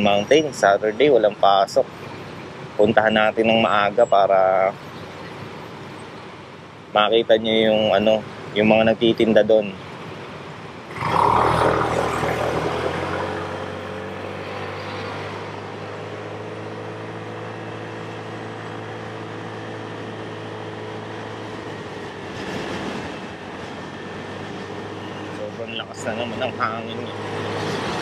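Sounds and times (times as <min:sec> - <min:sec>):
road noise: 0:00.0 - 0:28.0
motorcycle engine drone: 0:10.9 - 0:28.0.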